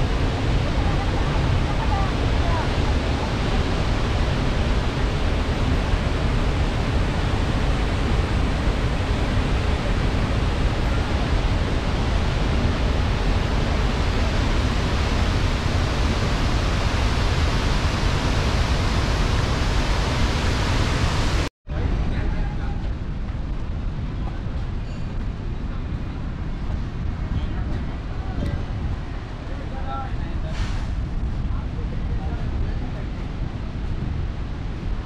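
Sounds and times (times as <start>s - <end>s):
waterfall rushing: 0.0s - 21.5s.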